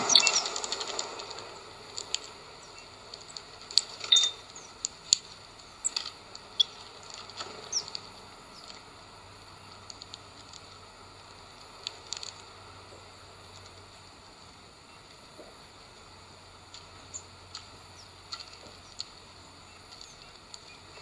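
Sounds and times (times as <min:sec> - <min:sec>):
high bird calls: 0:00.0 - 0:01.4, 0:03.9 - 0:04.8, 0:05.7 - 0:06.9, 0:07.6 - 0:08.7
birds pecking seeds: 0:00.0 - 0:21.0.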